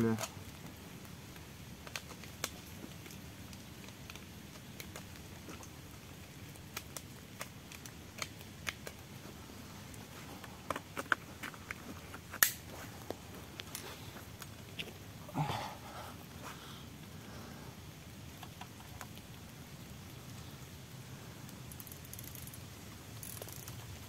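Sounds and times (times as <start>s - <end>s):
shotgun handling clicks and taps: 10.4s - 12.6s.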